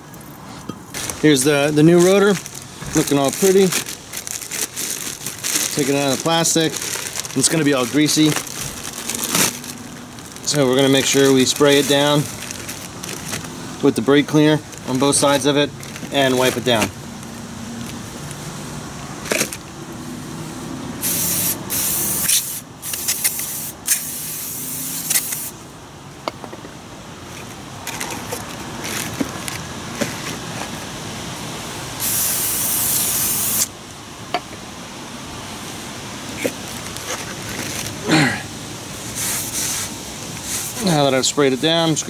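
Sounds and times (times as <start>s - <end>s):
aerosol spray hissing: 21.0s - 25.5s, 32.0s - 33.7s.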